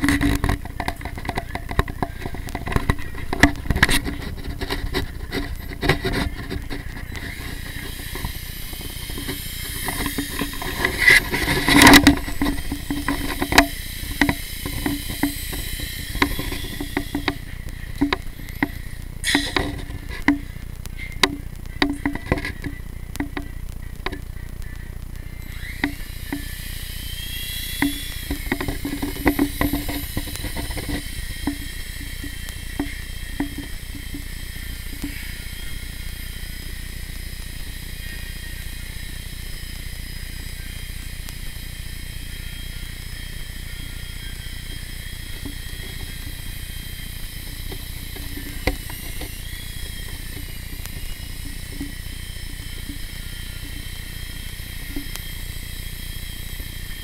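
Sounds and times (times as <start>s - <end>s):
clicks: 0.0s - 37.8s
toy helicopter motor whine: 0.0s - 57.0s.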